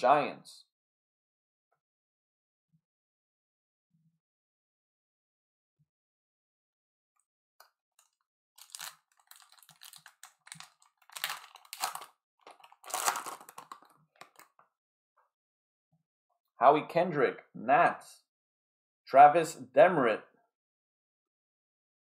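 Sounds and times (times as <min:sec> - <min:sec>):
plastic wrapper crinkling and tearing: 0:08.0 - 0:14.6.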